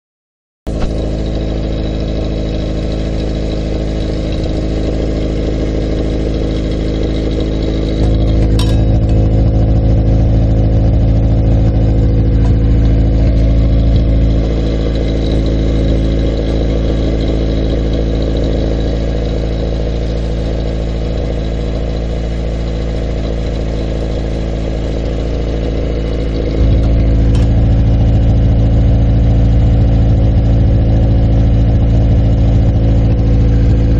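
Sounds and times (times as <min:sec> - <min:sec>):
car engine idling: 0:00.7 - 0:33.9
metal clink: 0:08.0 - 0:09.5.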